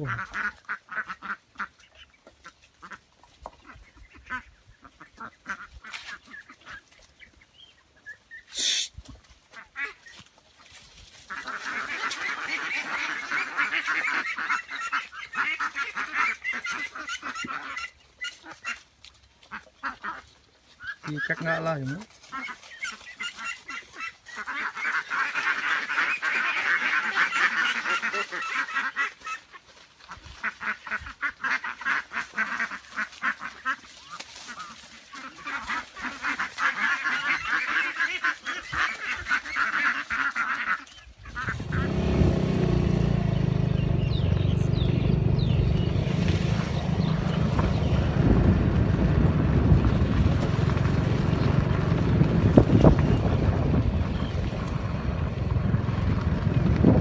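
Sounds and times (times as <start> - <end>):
fowl honking and quacking: 0.0 - 48.9
loud low rumble: 41.6 - 57.0.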